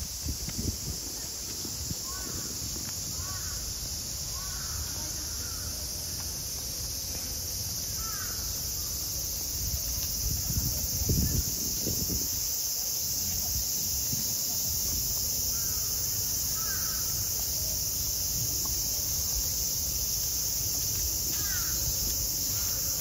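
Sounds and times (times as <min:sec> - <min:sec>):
cicadas droning: 0:00.0 - 0:23.0.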